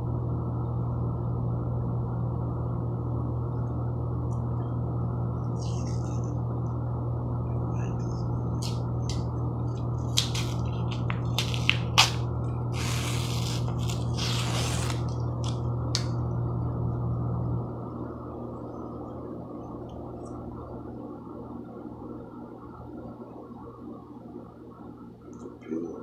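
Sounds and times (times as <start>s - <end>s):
low hum: 0.0s - 26.0s
paper wrapper crinkling and ripping: 9.8s - 15.6s.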